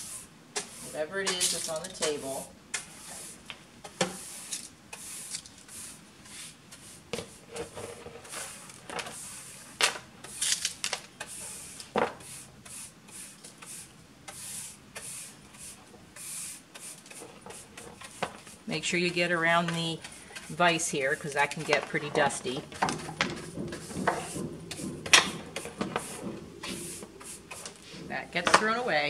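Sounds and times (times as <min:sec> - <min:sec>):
brush sweeping wood shavings: 0:00.0 - 0:03.5, 0:04.1 - 0:07.5, 0:08.2 - 0:10.4, 0:11.2 - 0:22.6, 0:23.4 - 0:28.2
sharp knocks: 0:22.6 - 0:27.2.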